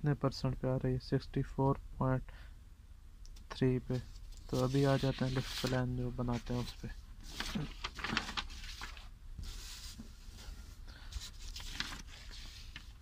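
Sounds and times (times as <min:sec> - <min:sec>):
paper rustling and crinkling: 0:04.0 - 0:13.0.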